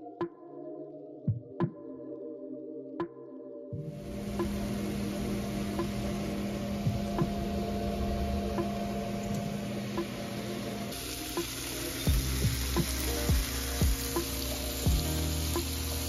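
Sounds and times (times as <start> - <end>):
food sizzling in a pan: 4.0 - 16.0.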